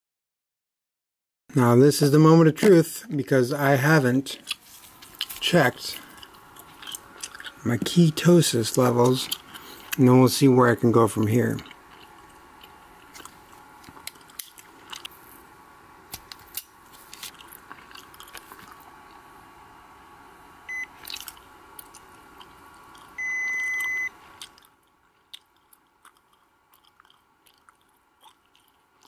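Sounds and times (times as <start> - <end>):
meter beeping: 20.7 - 21.0, 23.2 - 24.2.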